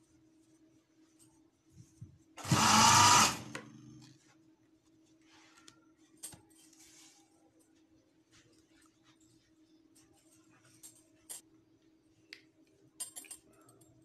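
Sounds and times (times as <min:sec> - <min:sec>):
sewing machine stitching: 0:02.4 - 0:03.7.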